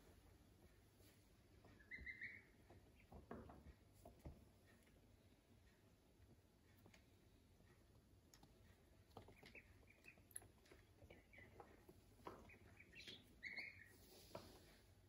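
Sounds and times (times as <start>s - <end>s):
ducklings peeping: 1.5s - 4.0s, 8.3s - 14.9s.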